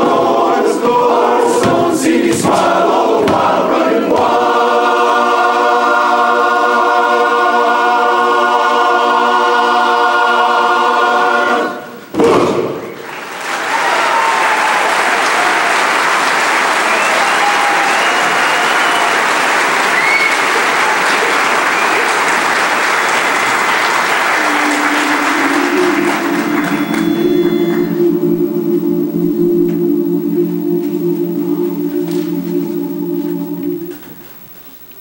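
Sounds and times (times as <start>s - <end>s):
men's chorus singing low chord: 0.0s - 12.0s, 23.6s - 34.2s
whistles from audience: 12.7s - 28.6s
audience applauding: 13.0s - 29.8s.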